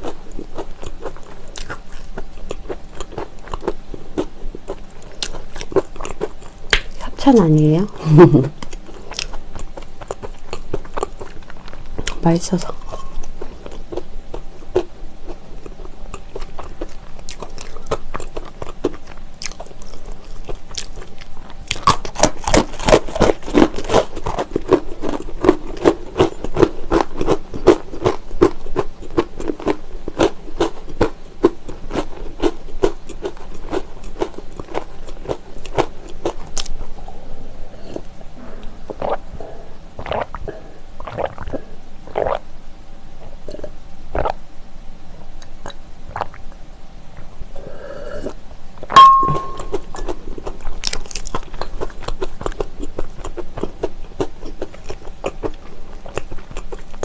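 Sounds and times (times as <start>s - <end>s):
crunching and chewing pretzels: 0.0s - 42.4s, 43.2s - 44.4s, 45.3s - 57.0s.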